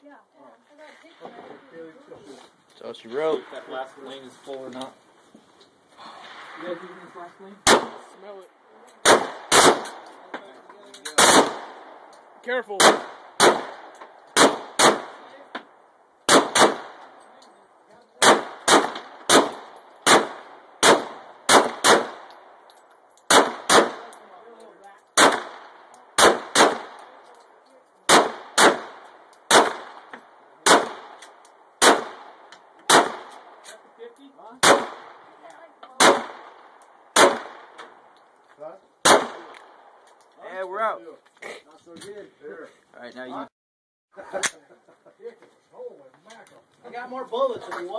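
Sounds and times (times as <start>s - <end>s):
pistol shots echoing: 7.6s - 8.2s, 9.0s - 10.3s, 11.1s - 12.1s, 12.7s - 15.4s, 16.2s - 17.3s, 18.2s - 24.3s, 25.1s - 27.3s, 28.0s - 33.6s, 34.6s - 35.3s, 36.0s - 38.1s, 39.0s - 39.9s.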